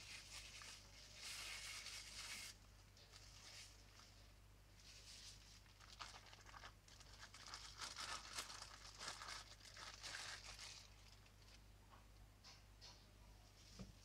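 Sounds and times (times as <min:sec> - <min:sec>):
plastic wrapping crinkling: 0:00.0 - 0:04.2, 0:04.8 - 0:11.6.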